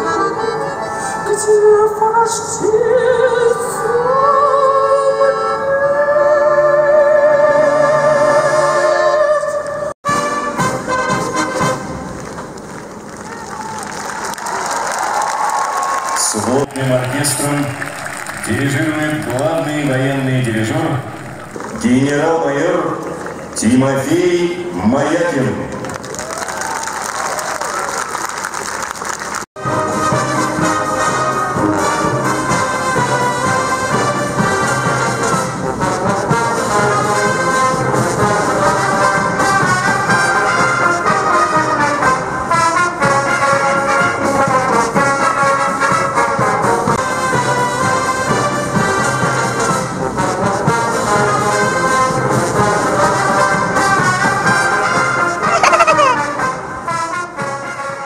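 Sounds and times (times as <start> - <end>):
military brass bands playing: 10.0 - 12.6, 16.6 - 22.1, 29.6 - 58.0.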